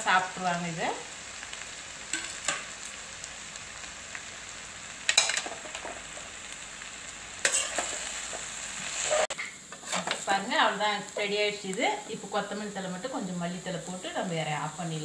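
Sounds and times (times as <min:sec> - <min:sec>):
food sizzling in a metal pan: 0:00.0 - 0:15.0
metal spatula scraping a pan: 0:07.4 - 0:10.3.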